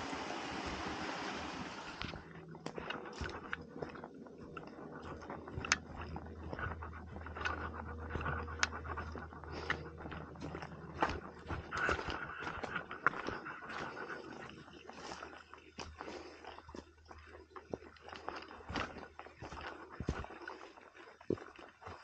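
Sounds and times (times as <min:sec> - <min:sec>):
steady rushing noise: 0:00.0 - 0:02.2.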